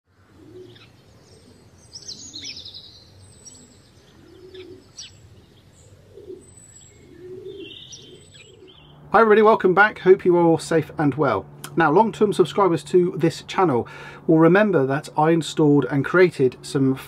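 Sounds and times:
songbird chirps and trills: 0.1s - 13.6s
pigeon cooing: 0.2s - 2.6s, 4.0s - 5.1s, 5.8s - 8.8s.

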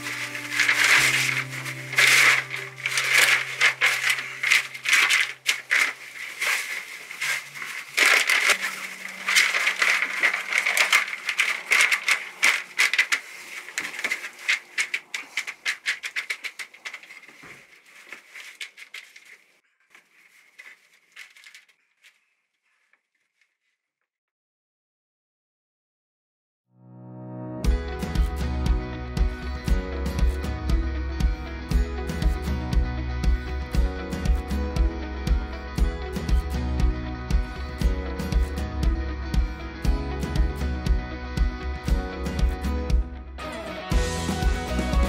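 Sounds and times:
plastic sheeting crinkling: 0.0s - 23.8s.

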